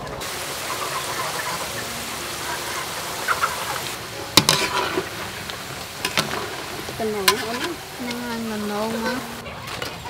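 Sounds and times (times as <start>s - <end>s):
food deep-frying in oil: 0.0s - 9.4s
wire skimmer scraping a wok: 4.3s - 9.3s.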